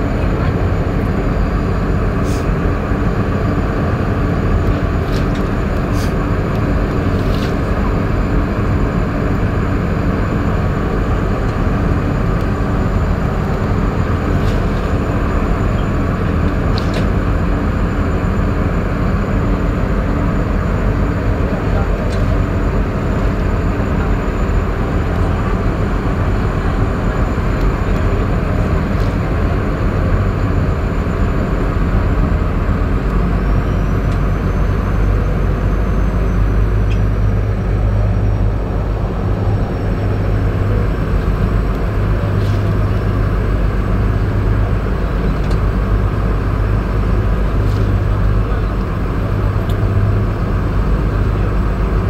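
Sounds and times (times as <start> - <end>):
boat engine humming: 0.0 - 52.0.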